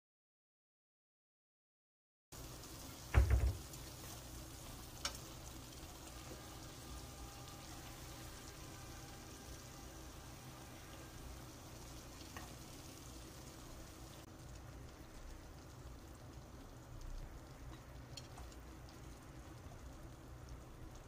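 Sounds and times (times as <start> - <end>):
faint sizzling in a pan: 2.3 - 21.0
chopsticks clicking on pan: 5.0 - 5.3, 17.7 - 18.6.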